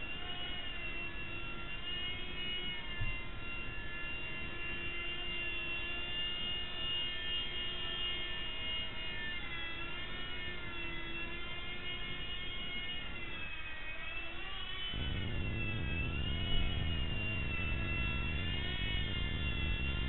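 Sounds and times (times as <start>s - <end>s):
small electric motor whine: 0.0s - 20.0s
rotor rush: 15.0s - 20.0s.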